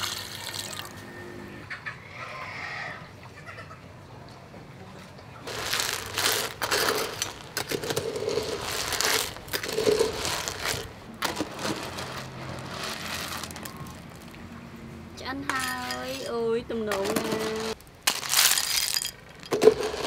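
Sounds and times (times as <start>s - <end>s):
snail shells rattling: 5.5s - 14.4s, 16.9s - 20.0s
metal ladle scraping a pot: 5.6s - 13.7s.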